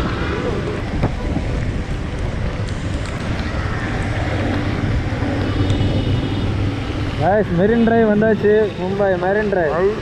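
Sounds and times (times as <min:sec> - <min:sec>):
wind buffeting microphone: 0:00.0 - 0:07.2
vehicle hum: 0:00.0 - 0:10.0.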